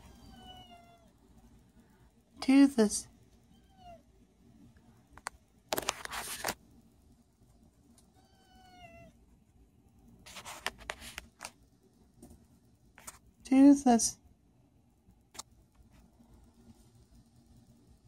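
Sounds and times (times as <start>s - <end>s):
rustling noise: 5.7s - 6.7s, 10.2s - 13.4s
kitten meowing: 8.2s - 9.1s.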